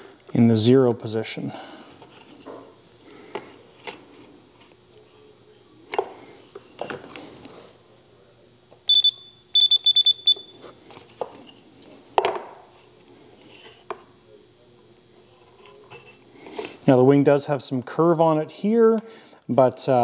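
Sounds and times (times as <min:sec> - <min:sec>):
high electronic beeps: 0:08.9 - 0:10.6.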